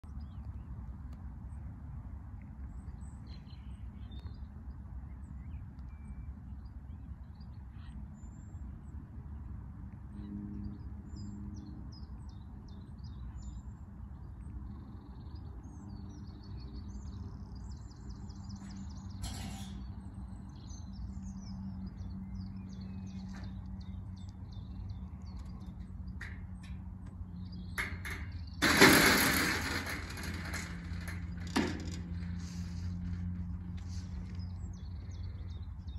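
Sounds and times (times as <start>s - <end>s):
low steady rumble: 19.9s - 35.9s
metal gate clanking shut: 27.7s - 33.4s.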